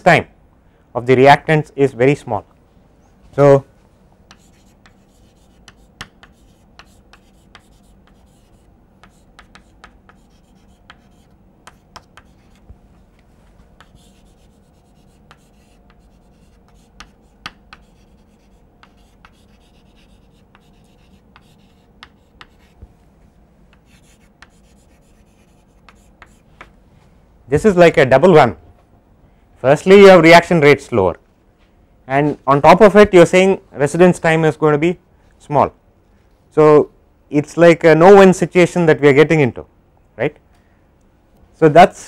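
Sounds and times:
faint steady hum: 0.0 - 42.0
chalk tapping and scratching: 4.3 - 22.9, 23.7 - 26.7.

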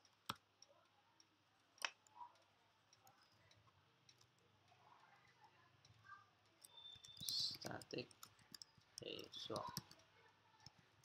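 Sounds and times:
faint keyboard keystrokes: 6.6 - 11.0.

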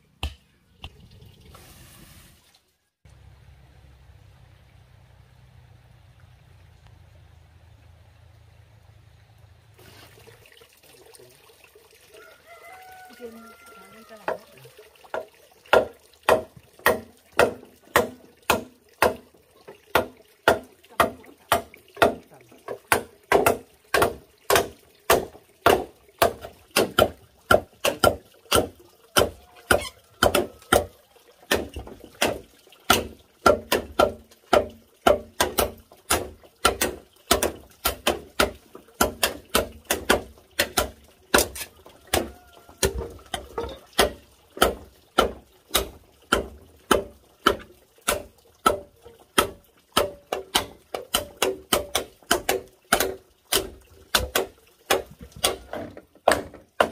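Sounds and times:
machete chopping bamboo: 15.7 - 19.3, 19.9 - 30.9, 31.5 - 56.9.

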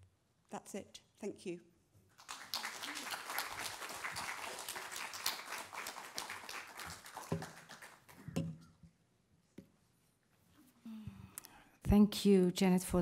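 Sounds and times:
audience applauding: 2.2 - 8.3.

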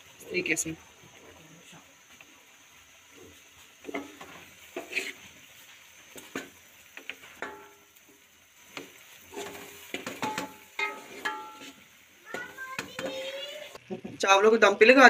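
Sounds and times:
faint sizzle: 0.0 - 15.0
spoon scraping and clinking pan: 7.4 - 7.8, 9.3 - 13.2.

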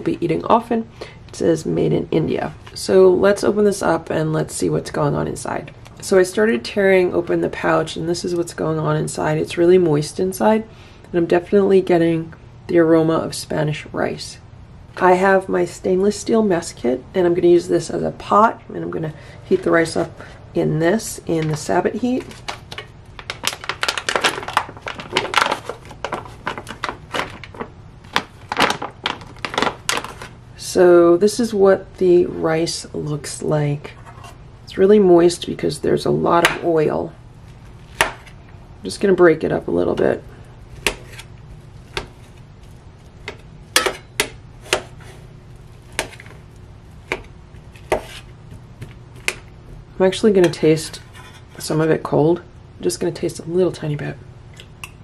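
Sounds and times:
foil pouch crinkling: 22.2 - 30.4
metal spoon scraping a pot: 50.4 - 51.7.

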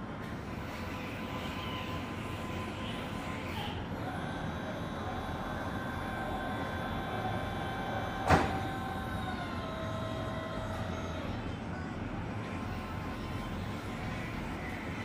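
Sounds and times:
forklift hydraulic whine: 0.0 - 11.6.

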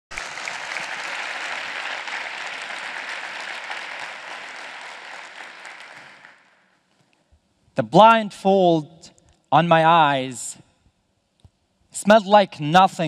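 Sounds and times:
crowd applauding: 0.1 - 6.7.

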